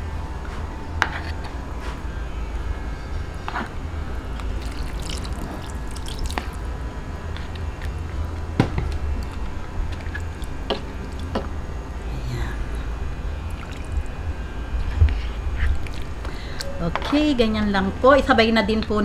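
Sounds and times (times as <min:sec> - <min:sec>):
steady low hum: 0:00.0 - 0:19.0
broth pouring and splashing into pan: 0:04.6 - 0:06.7, 0:13.5 - 0:14.1.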